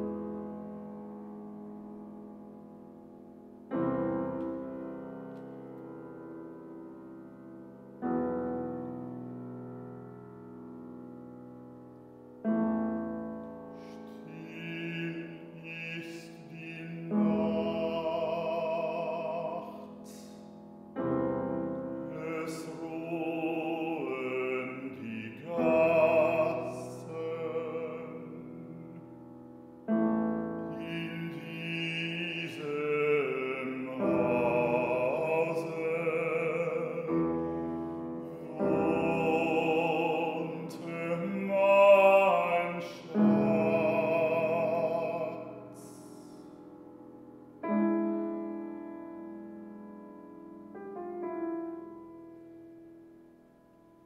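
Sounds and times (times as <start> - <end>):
piano chords: 0.0 - 54.0
man singing art song: 13.7 - 20.7, 22.0 - 29.2, 30.3 - 46.6.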